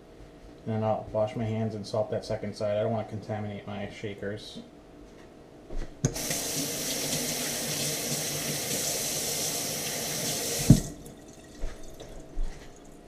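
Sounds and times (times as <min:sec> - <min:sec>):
tap running into sink: 0:06.0 - 0:12.5
hands washing under water: 0:06.1 - 0:13.0.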